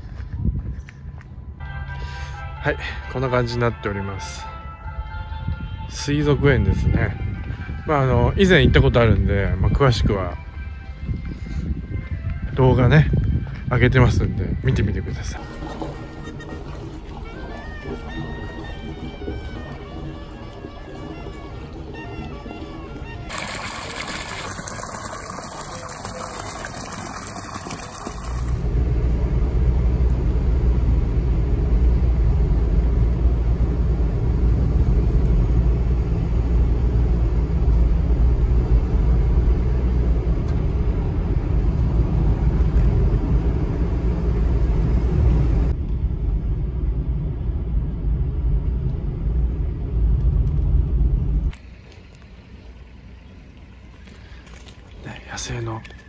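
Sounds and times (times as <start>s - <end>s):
car engine and tyres rumbling: 0.0s - 1.7s, 24.9s - 56.0s
water splashing from a pipe: 15.2s - 28.8s.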